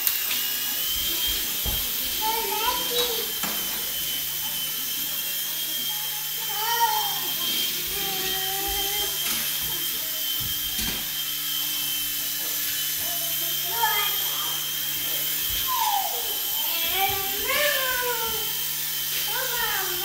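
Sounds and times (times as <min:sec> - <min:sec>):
toy helicopter rotors whining: 0:00.0 - 0:20.0
child's voice: 0:01.7 - 0:03.5, 0:06.1 - 0:09.4, 0:13.0 - 0:14.7, 0:15.6 - 0:18.6, 0:19.2 - 0:20.0.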